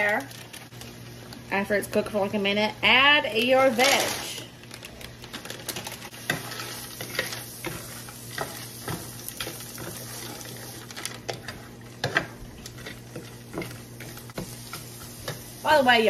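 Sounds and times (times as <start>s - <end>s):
vegetables sizzling in skillet: 0.0s - 16.0s
wooden spatula scraping pan: 6.2s - 15.4s.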